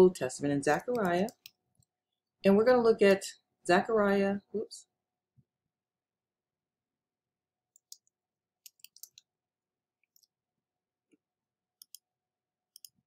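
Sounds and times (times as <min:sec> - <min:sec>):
keyboard keys clicking: 0:00.7 - 0:01.5.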